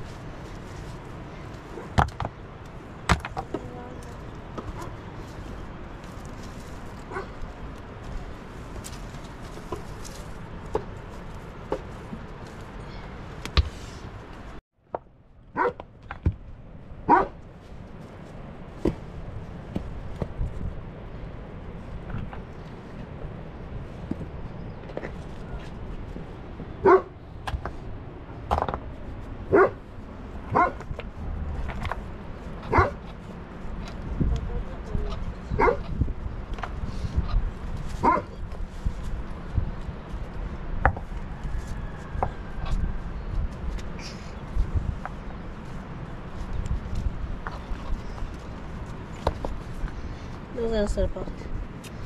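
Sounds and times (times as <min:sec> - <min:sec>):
dog barking and yipping: 0:07.1 - 0:07.4, 0:15.6 - 0:15.8, 0:17.1 - 0:17.4, 0:26.8 - 0:27.1, 0:29.5 - 0:29.8, 0:30.5 - 0:30.8, 0:32.7 - 0:33.0, 0:35.6 - 0:35.9, 0:38.0 - 0:38.4.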